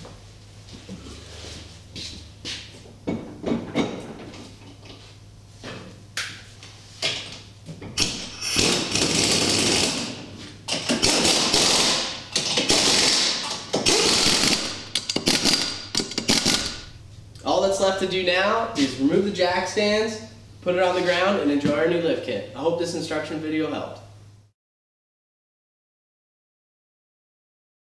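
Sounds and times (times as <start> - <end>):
pneumatic impact wrench: 8.0 - 16.9.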